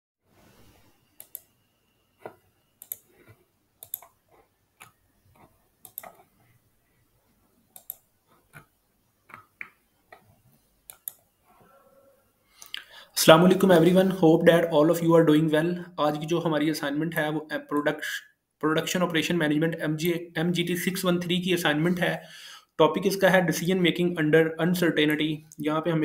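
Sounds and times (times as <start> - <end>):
faint computer mouse clicks: 1.2 - 1.5, 2.2 - 4.2, 4.8 - 6.3, 7.8 - 8.7, 10.9 - 11.2.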